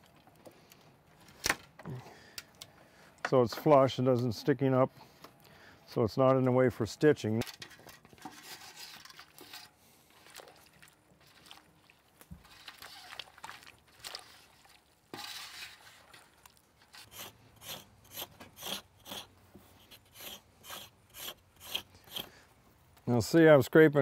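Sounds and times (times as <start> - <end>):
handling and rustling: 7.4 - 17.1
blade scraping root: 8.2 - 9.9, 12.3 - 22.5.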